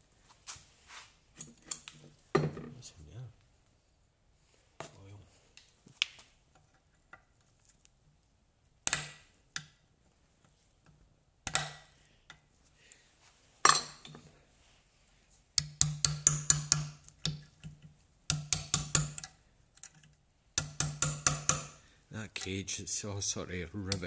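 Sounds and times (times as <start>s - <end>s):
hand tools tapping on metal: 15.6s - 20.0s, 20.6s - 21.8s.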